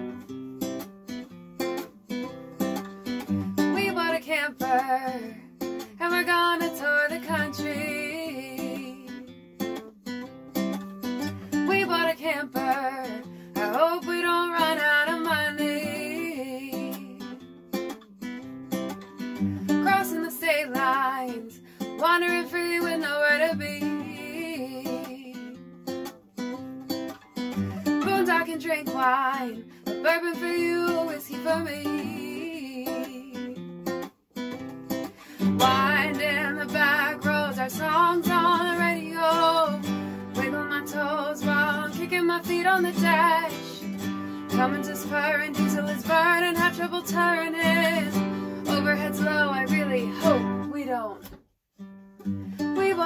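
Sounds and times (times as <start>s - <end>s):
strummed acoustic guitar: 0.0s - 53.0s
woman singing: 3.6s - 9.4s, 11.5s - 17.4s, 19.6s - 25.6s, 27.8s - 33.7s, 35.4s - 51.4s, 52.6s - 53.0s.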